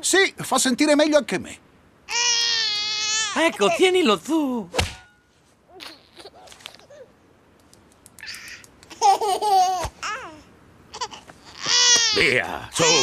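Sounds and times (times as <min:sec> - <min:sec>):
baby babbling and giggling: 0:02.1 - 0:03.9, 0:05.7 - 0:07.2, 0:08.2 - 0:13.0.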